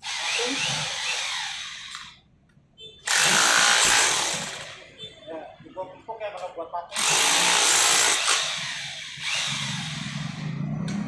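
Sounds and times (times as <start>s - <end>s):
rotary hammer drill: 0.0s - 2.1s, 3.1s - 4.8s, 7.0s - 10.6s.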